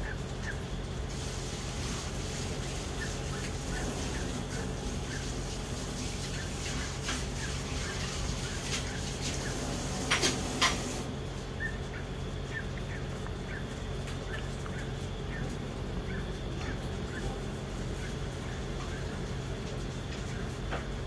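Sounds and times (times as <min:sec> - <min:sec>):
low background hum: 0:00.0 - 0:21.0.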